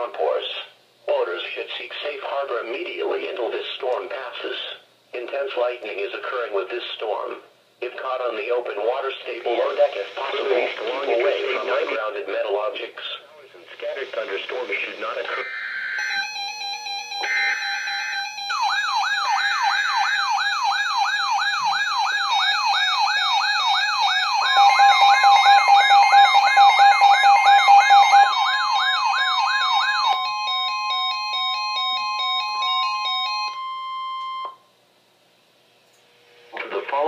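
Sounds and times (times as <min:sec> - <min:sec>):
buzzy data burst: 0:09.3 - 0:12.2, 0:13.7 - 0:16.3, 0:17.2 - 0:18.9
loud steady warning tone: 0:12.9 - 0:34.7
steady alert tones: 0:13.9 - 0:32.6
electronic siren wailing: 0:15.2 - 0:34.6.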